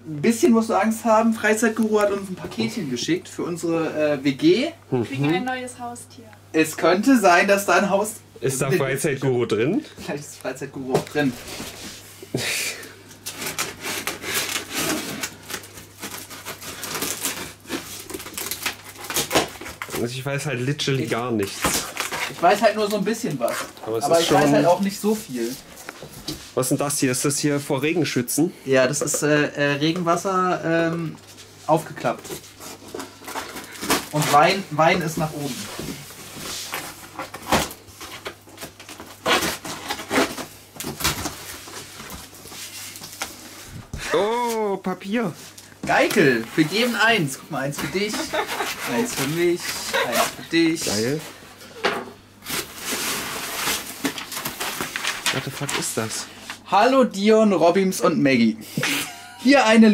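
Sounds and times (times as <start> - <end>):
plastic wrap and tape tearing: 13.1 - 20.3, 21.0 - 25.8, 32.3 - 43.5, 45.6 - 51.2, 52.4 - 56.2.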